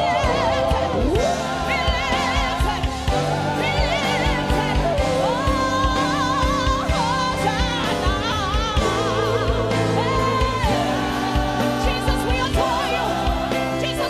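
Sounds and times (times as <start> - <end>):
steady drum beat: 0.0 - 14.0
woman singing with vibrato: 0.0 - 14.0.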